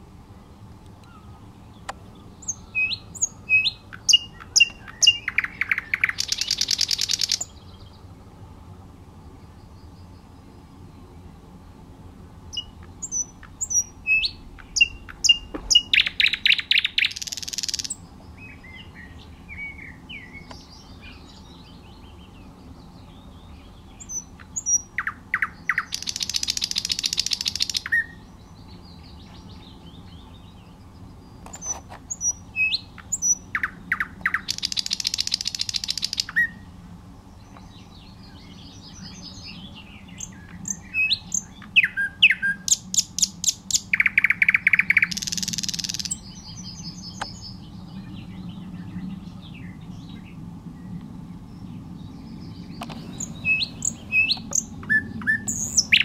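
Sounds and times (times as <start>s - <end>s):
nightingale singing: 0.4s - 8.1s, 12.5s - 36.7s, 37.3s - 56.0s.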